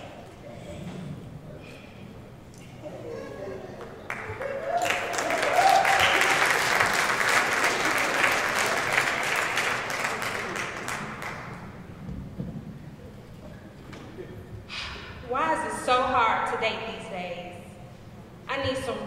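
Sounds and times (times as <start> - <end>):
audience applauding: 3.8 - 11.8.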